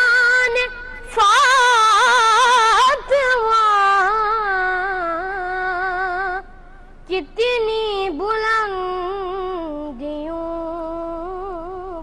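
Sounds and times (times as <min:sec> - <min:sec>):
boy singing unaccompanied: 0:00.0 - 0:06.5, 0:07.1 - 0:12.0.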